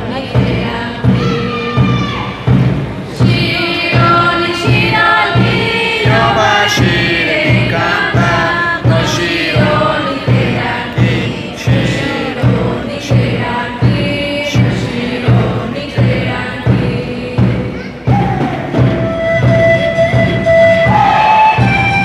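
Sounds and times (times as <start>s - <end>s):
steady low beat: 0.0s - 18.4s
voices chanting in unison: 3.1s - 18.9s.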